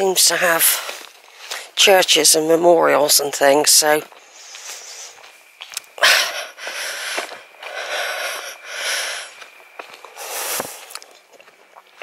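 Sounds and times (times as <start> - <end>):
heavy breathing: 6.0 - 11.0.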